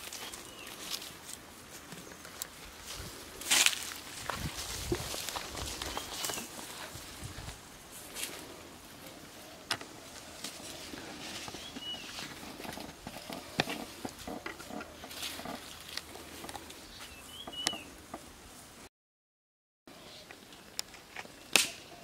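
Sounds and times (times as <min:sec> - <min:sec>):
footsteps through brush: 0:00.0 - 0:17.9
leafy branches rustling: 0:00.0 - 0:18.8
twigs snapping: 0:21.5 - 0:21.8.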